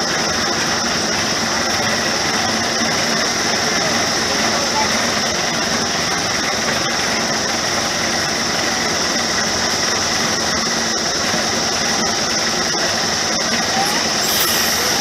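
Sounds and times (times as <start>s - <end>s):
miniature train engine running: 0.0s - 15.0s
high hiss: 13.6s - 15.0s.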